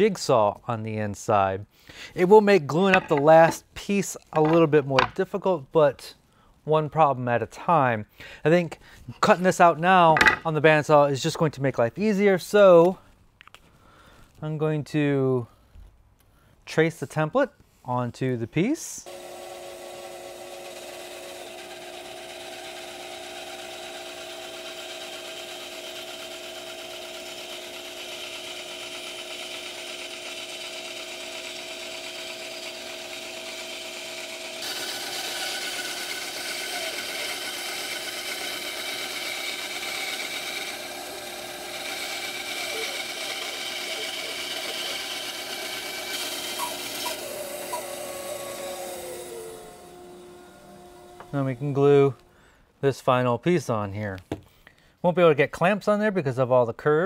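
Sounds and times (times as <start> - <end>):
bandsaw motor hum: 19.0 - 52.3.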